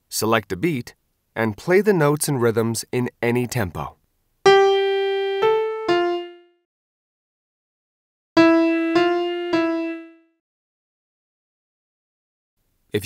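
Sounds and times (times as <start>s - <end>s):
single piano notes: 8.4s - 10.2s.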